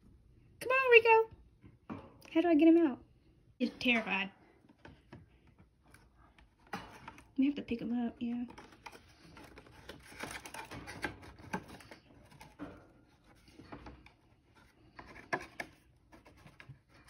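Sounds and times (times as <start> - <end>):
cardboard box rustling: 8.5 - 17.0.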